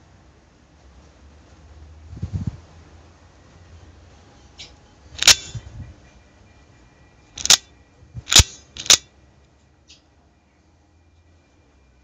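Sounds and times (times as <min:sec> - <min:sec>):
sharp metallic clicks: 0:04.6 - 0:05.7, 0:07.4 - 0:09.1
switchblade snapping open: 0:05.2 - 0:05.6, 0:07.4 - 0:07.6, 0:08.3 - 0:09.0.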